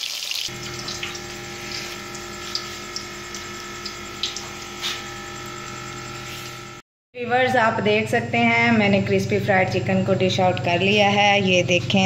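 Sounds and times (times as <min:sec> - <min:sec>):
hot oil sizzling: 0:00.0 - 0:06.8
steady low hum: 0:00.5 - 0:12.0.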